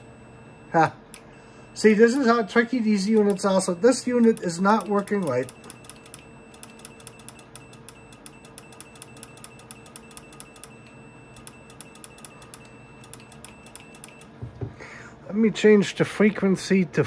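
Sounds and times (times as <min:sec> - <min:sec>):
relay clicking rapidly: 0:02.2 - 0:07.5.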